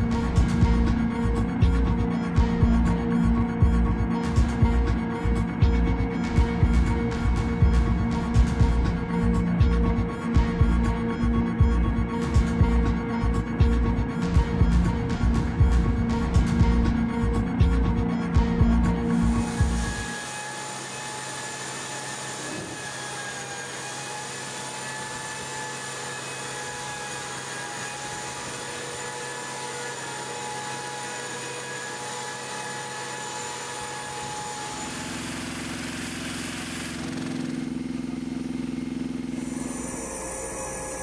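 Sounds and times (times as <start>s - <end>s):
low machinery hum: 0.0s - 21.2s, 32.1s - 41.0s
aircraft machinery whining hiss: 0.0s - 30.9s, 31.9s - 41.0s.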